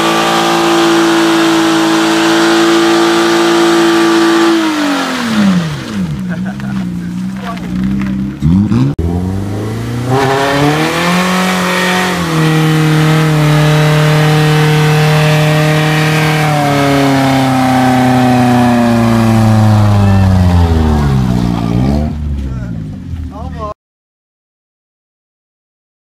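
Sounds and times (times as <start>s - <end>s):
car engine revving hard: 0.0s - 6.7s, 8.4s - 22.4s.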